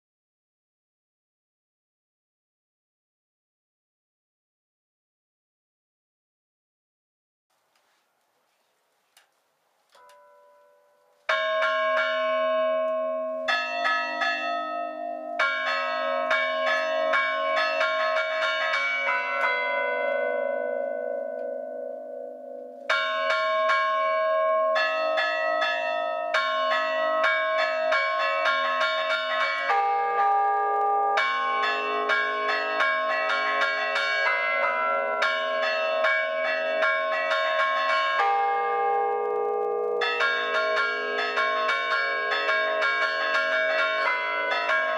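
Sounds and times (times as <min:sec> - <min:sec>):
church bells ringing a tune: 0:10.0 - 0:44.9.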